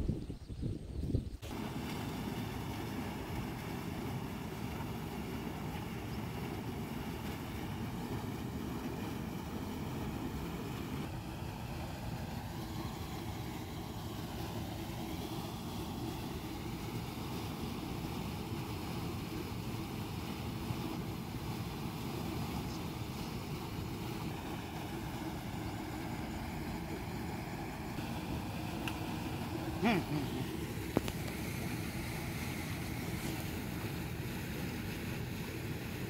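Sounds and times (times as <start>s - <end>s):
water pouring into a channel: 30.4s - 36.0s.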